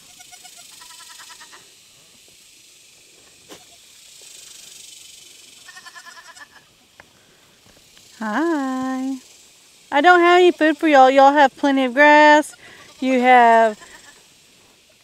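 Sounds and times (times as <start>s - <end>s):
steady background hiss: 0.0s - 15.0s
goats bleating: 0.1s - 1.6s, 5.6s - 6.7s, 12.4s - 14.2s.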